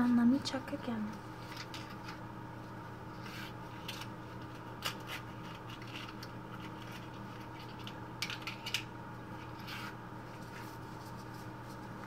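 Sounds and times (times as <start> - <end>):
hands rustling and scraping objects: 3.2 - 8.8, 9.4 - 12.0.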